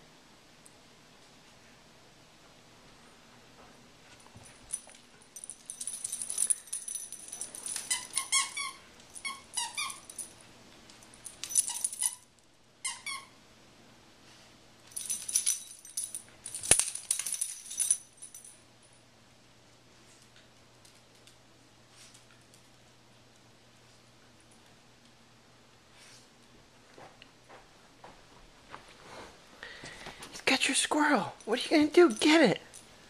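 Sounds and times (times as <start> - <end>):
squeaky toy squeaking: 7.8 - 10.1, 12.8 - 13.3.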